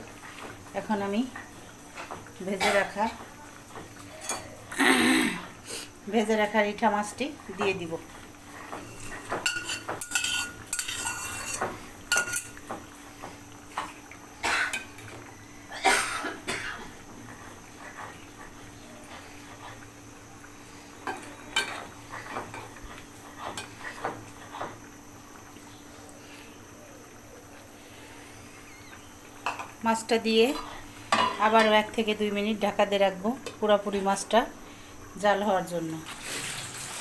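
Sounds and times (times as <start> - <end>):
metal utensils clinking on pot: 9.0 - 12.6.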